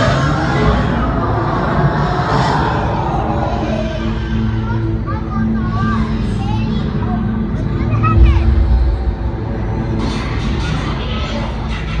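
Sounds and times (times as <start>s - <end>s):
dramatic background music: 0.0s - 12.0s
low rumble: 8.0s - 10.8s.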